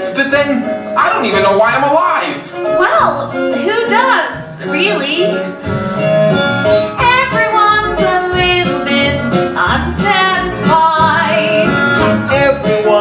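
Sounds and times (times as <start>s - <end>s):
band accompaniment: 0.0s - 13.0s
cast singing musical song: 7.0s - 13.0s.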